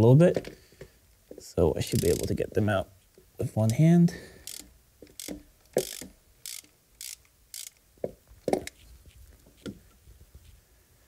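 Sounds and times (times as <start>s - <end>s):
socket ratchet clicking: 1.9s - 2.3s, 4.4s - 7.9s.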